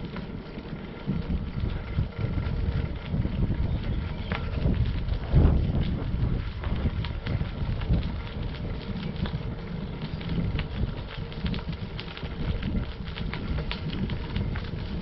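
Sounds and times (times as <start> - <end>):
bicycle tyres crunching on gravel: 0.0 - 15.0.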